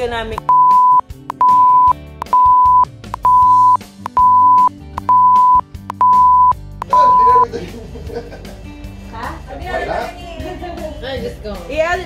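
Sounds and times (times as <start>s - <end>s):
quiet background music: 0.0s - 12.0s
high-pitched censor beep: 0.4s - 7.4s.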